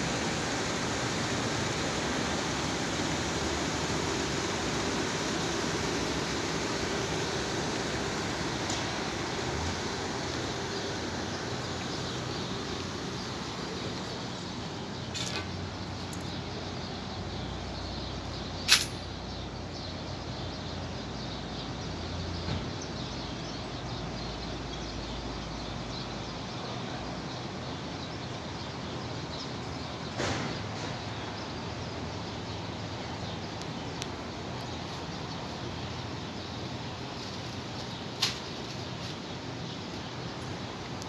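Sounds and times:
outdoor background noise: 0.0 - 41.0.

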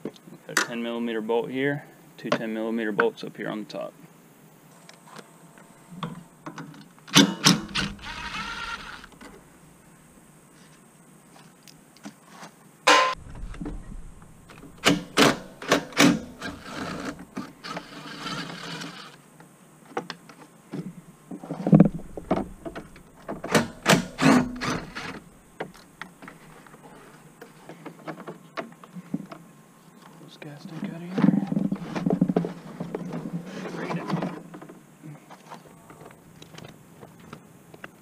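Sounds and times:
cordless drill whirring: 7.6 - 9.2
rustling: 19.8 - 29.2, 29.8 - 37.5.

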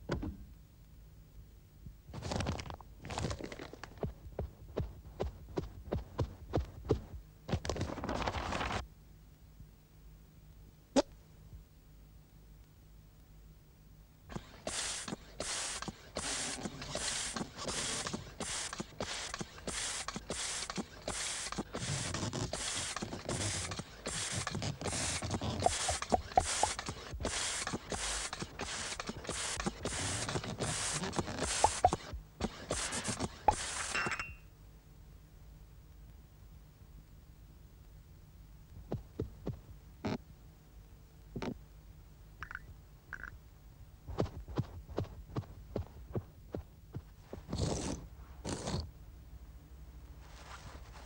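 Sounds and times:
rubbery squeaks: 14.3 - 33.9, 47.3 - 48.9
hissing air pump strokes: 14.3 - 34.1.

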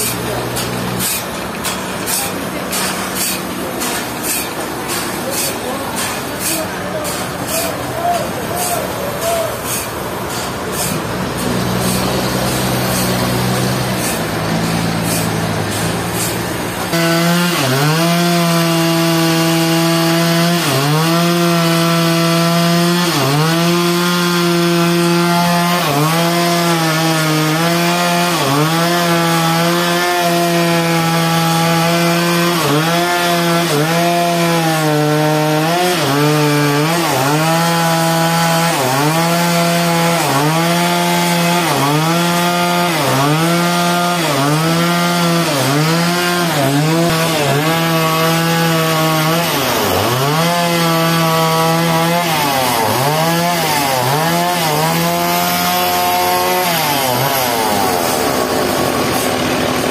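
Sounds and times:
chainsaw cutting log: 0.0 - 59.9.

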